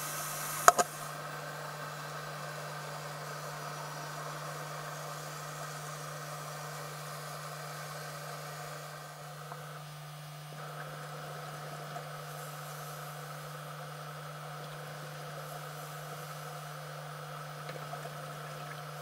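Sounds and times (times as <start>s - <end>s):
camera running hum and hiss: 0.0s - 19.0s
faint click: 0.6s - 1.0s.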